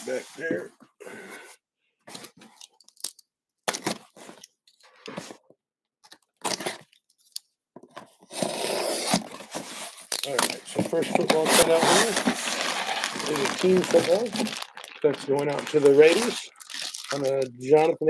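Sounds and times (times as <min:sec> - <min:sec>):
box cutter slicing packing tape: 0:08.3 - 0:09.4.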